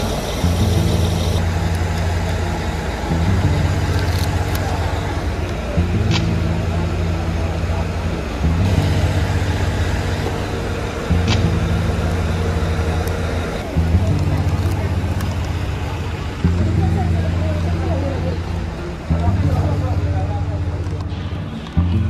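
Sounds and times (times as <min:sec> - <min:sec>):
low bass chord music: 0:00.0 - 0:22.0
sharp click: 0:03.8 - 0:06.6, 0:11.2 - 0:11.7.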